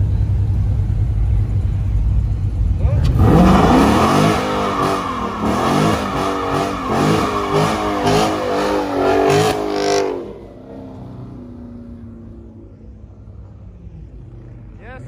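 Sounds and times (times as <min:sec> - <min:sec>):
car engine revving hard: 0:03.0 - 0:11.6.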